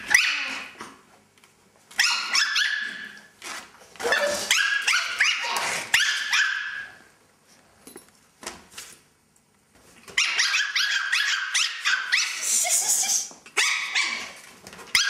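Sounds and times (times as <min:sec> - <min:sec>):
puppies yipping and barking: 0:02.0 - 0:03.2, 0:04.0 - 0:07.0, 0:10.2 - 0:12.7, 0:13.6 - 0:15.0.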